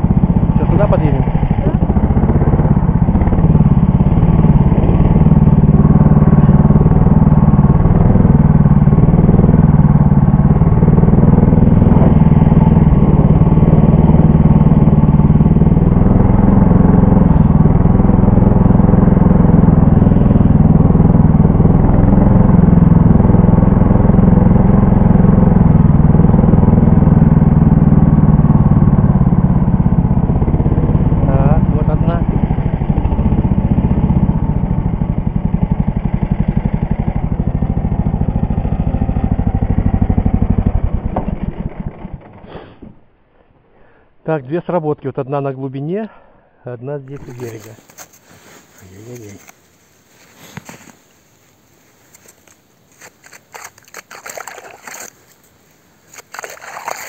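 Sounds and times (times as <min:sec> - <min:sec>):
snow tow engine running: 0:00.0 - 0:43.0.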